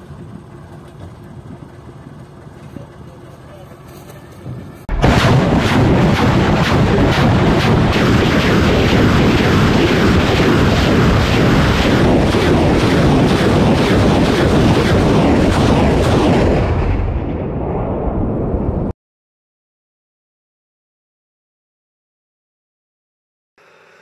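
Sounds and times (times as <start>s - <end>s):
rocket motors roaring: 0.0s - 18.8s
rocket launches: 4.9s - 18.9s.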